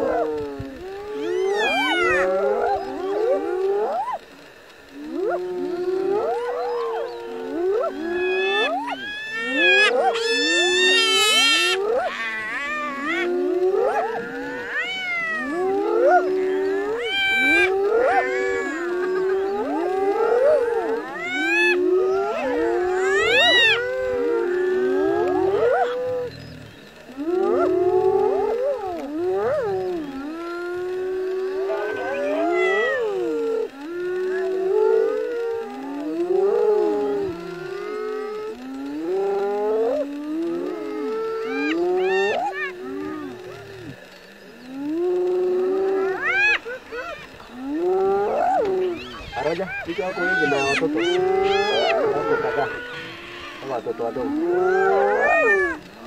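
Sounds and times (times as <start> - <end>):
hyenas whooping: 0.0 - 56.0.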